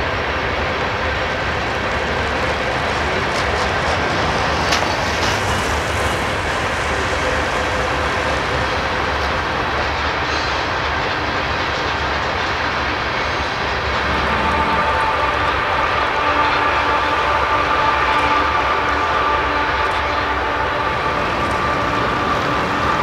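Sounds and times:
train wheels rumbling on rail: 0.0 - 23.0
steady whine: 12.5 - 23.0.

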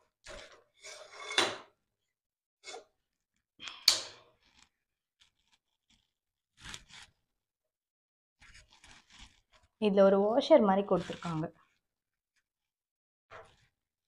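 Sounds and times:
tripod parts rustling and clicking: 2.7 - 7.2, 8.4 - 9.8, 11.0 - 11.8, 13.3 - 13.8.

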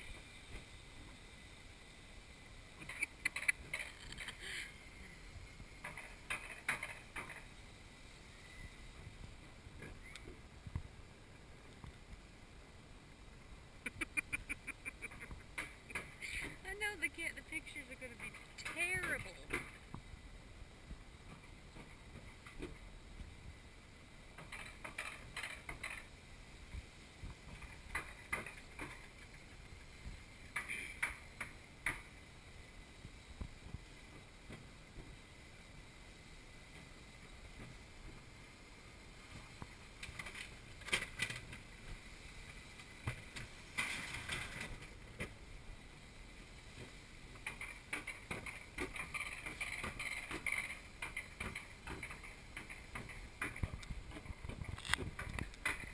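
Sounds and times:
coaster sled rumbling on track: 0.0 - 55.9
quick clicking and rattling: 2.8 - 4.4.

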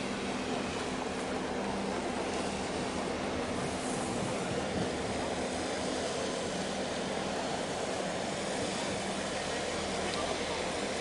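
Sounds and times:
ship engines droning: 0.0 - 11.0.

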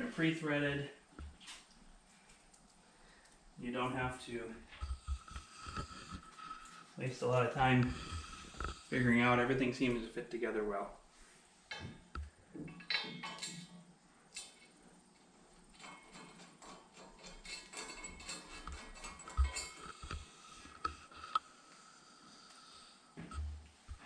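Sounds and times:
metal clinks and rattles: 12.7 - 14.6, 15.7 - 21.4.

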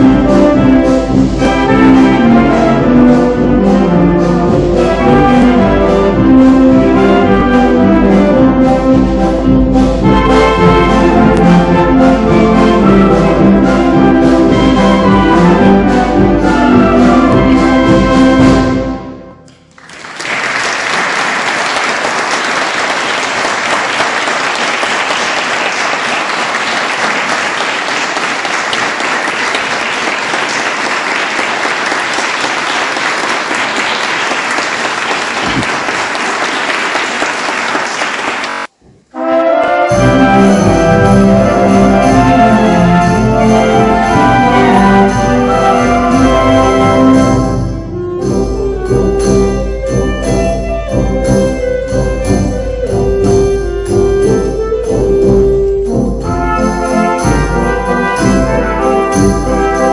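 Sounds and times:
brass ensemble music: 0.0 - 59.9
audience applauding: 19.6 - 38.7.

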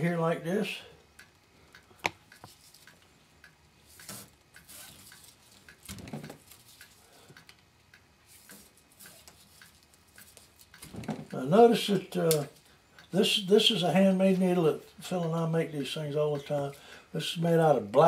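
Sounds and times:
steady ticking: 1.0 - 18.0
soft scratches and clicks: 8.3 - 10.9.

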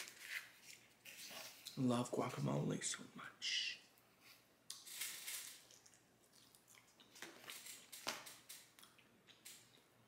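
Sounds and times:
chewing food close-up: 5.6 - 10.0.

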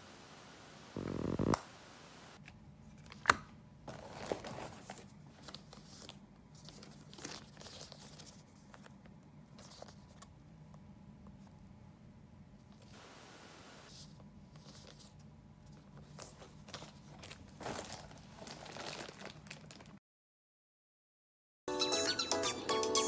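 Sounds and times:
packaging rustling and crinkling: 3.9 - 9.0, 16.0 - 20.0.

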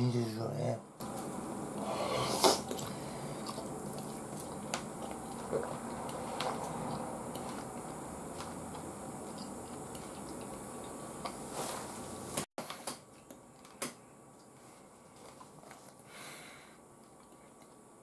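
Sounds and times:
man chewing: 1.0 - 13.8.

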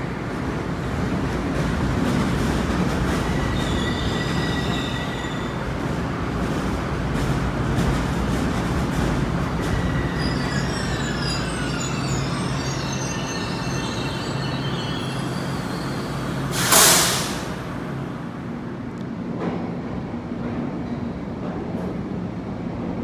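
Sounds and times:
train low hum: 0.0 - 23.0
high wheel squeal: 3.2 - 5.6, 9.7 - 16.7
loud hiss: 16.4 - 17.6.

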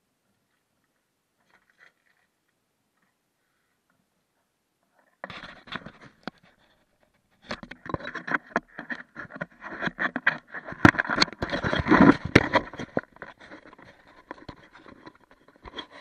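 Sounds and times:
camera handling scraping: 7.4 - 16.0.

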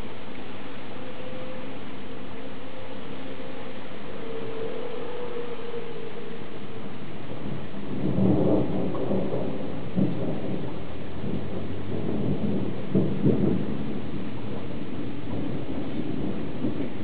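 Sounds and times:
steady background hiss: 0.0 - 17.0
thunder rumbling: 0.0 - 17.0
thunder cracks: 7.4 - 17.0.

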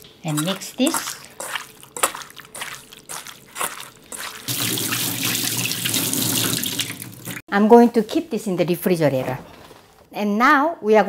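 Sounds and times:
hands squishing raw chicken: 0.0 - 5.0.

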